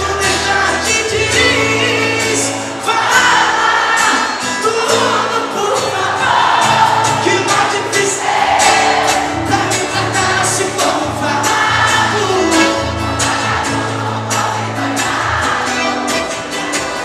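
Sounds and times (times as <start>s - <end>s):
man singing: 0.0s - 13.1s
accordion: 0.0s - 17.0s
acoustic guitar: 0.0s - 17.0s.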